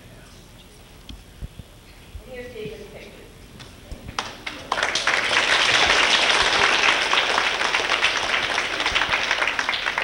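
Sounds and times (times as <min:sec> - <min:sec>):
children applauding: 0:04.2 - 0:10.0.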